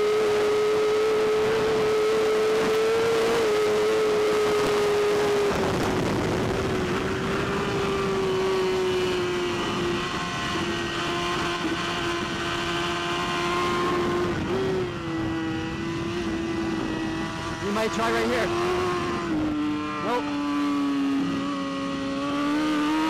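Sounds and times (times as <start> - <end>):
motorcycle engine running hard: 0.0 - 23.0
wind rush: 0.2 - 20.0.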